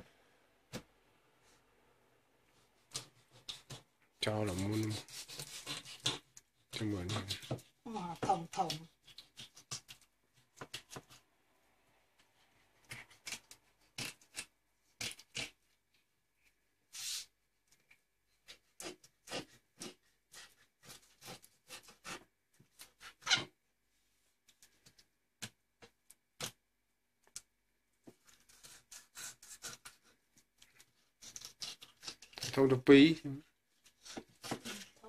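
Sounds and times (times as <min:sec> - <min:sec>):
knife scraping fish on board: 0:04.8 - 0:06.4.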